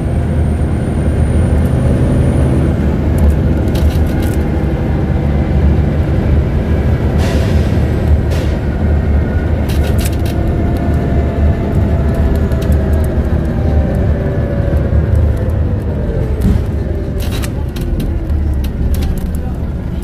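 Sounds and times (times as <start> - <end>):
bus interior rumble: 0.0 - 20.0
clicks and rattles: 3.2 - 4.5, 9.6 - 11.0, 16.4 - 20.0.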